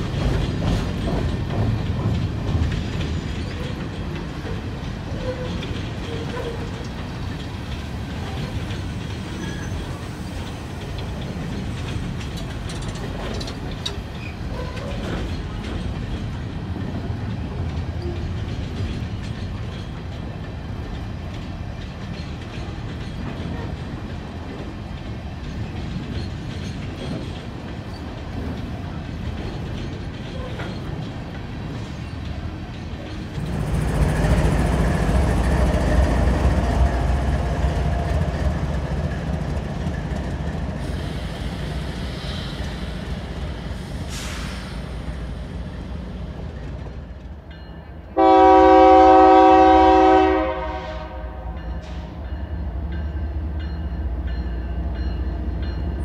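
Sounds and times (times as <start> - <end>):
diesel locomotive engine: 0.0 - 56.0
freight train wheels rumbling: 0.0 - 56.0.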